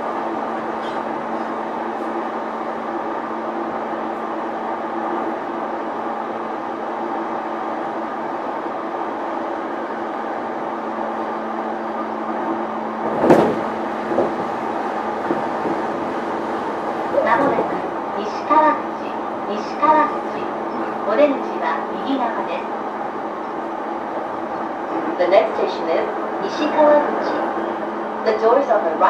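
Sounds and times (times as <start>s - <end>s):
train interior running hum: 0.0s - 29.0s.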